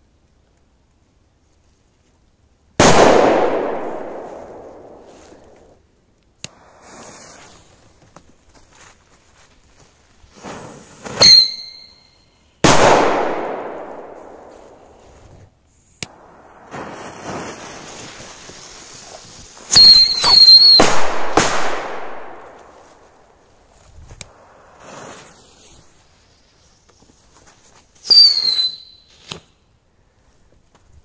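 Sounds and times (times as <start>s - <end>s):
firework whistling: 6.5s - 8.0s, 10.3s - 12.4s, 16.0s - 29.4s
loud hissing: 6.5s - 8.0s, 15.8s - 20.6s, 23.0s - 27.4s.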